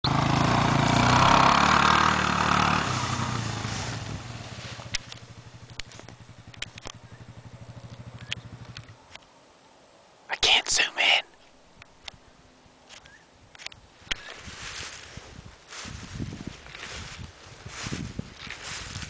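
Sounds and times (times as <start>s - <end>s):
atv engine idling: 0.0s - 9.2s
sharp clicks: 4.9s - 7.0s, 7.8s - 9.3s, 12.9s - 14.3s.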